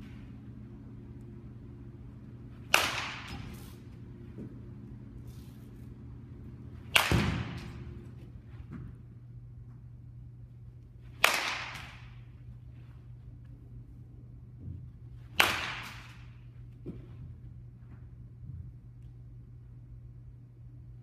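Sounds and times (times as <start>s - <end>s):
baseball bat hitting ball: 2.5s - 4.6s, 6.7s - 8.0s, 11.1s - 12.3s, 15.2s - 16.4s.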